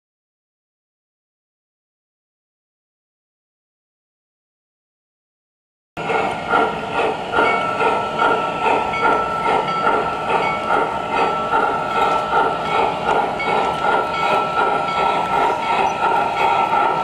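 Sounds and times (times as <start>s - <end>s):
model train steam chuffs: 6.0s - 17.0s
steady high whine: 6.0s - 17.0s.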